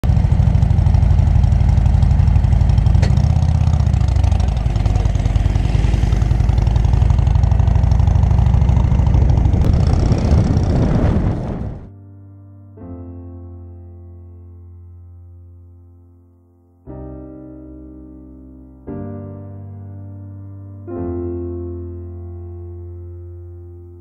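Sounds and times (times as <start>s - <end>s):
motorcycle engine running: 0.0s - 11.9s.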